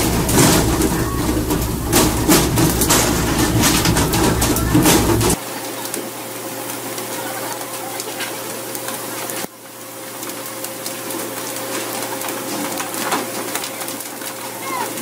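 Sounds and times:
sea water rushing along boat: 0:00.0 - 0:05.4
steady hum: 0:00.0 - 0:05.4.

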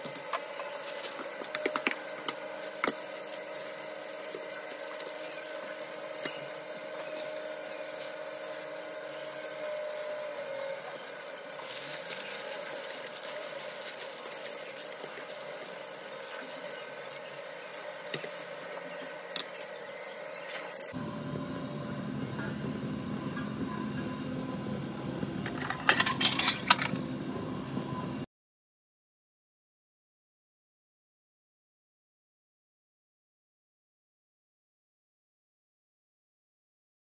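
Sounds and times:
aluminium foil crinkling: 0:00.0 - 0:21.0.

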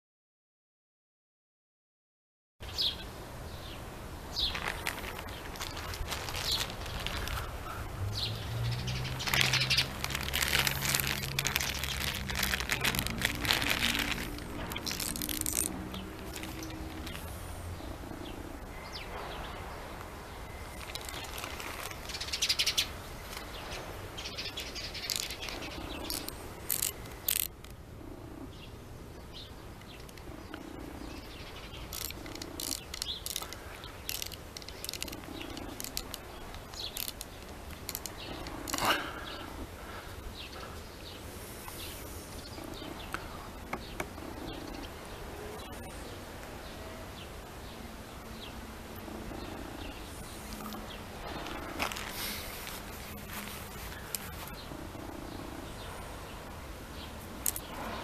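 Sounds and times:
birds chirping: 0:02.6 - 0:58.0
plastic bag rustling: 0:04.3 - 0:07.8, 0:08.9 - 0:17.4, 0:20.6 - 0:23.8, 0:50.5 - 0:54.6.

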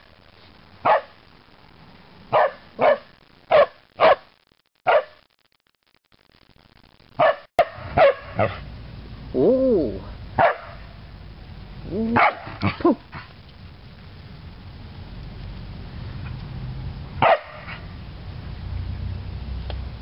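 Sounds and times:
dog barking: 0:00.8 - 0:01.2, 0:02.3 - 0:04.3, 0:04.9 - 0:05.2, 0:07.2 - 0:08.6, 0:10.4 - 0:10.9, 0:12.2 - 0:13.3, 0:17.2 - 0:17.9.

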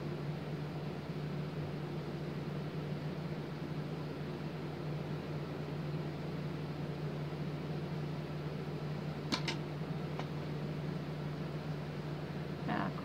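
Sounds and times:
low mechanical hum with hiss: 0:00.0 - 0:13.0.

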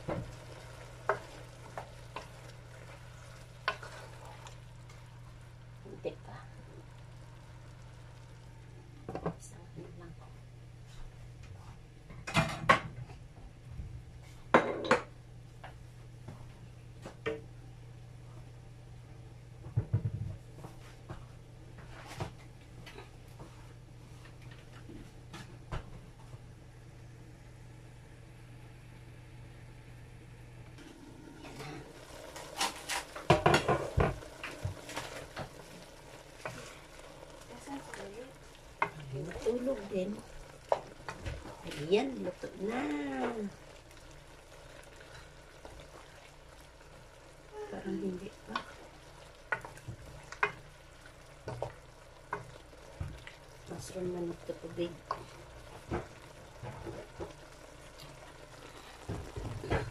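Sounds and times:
vegetables sizzling in a frying pan: 0:00.0 - 0:10.0, 0:27.7 - 0:59.9
steady low hum: 0:00.0 - 0:59.9
wooden spoon scraping a pan: 0:01.0 - 0:05.0, 0:31.4 - 0:43.6, 0:48.1 - 0:57.5
knocks against a pan: 0:19.7 - 0:20.2.

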